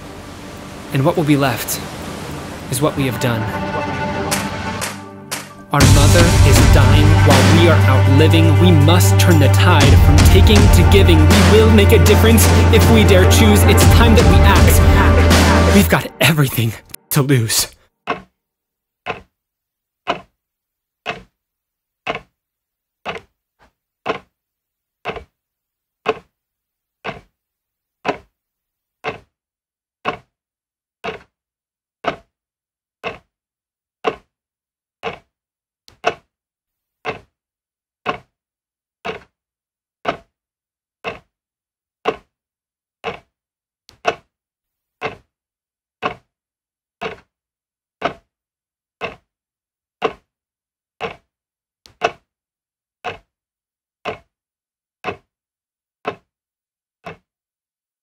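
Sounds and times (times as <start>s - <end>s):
clock ticking: 3.7s - 17.7s, 57.0s - 57.2s.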